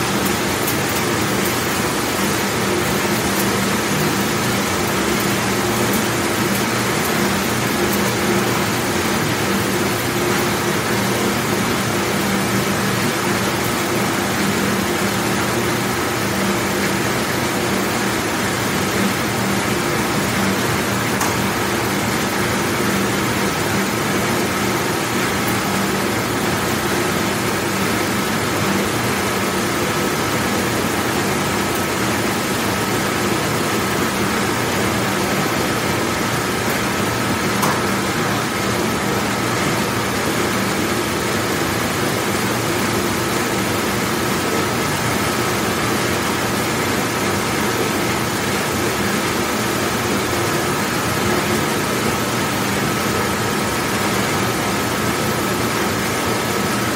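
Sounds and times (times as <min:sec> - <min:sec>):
dishwashing machine running: 0:00.0 - 0:56.9.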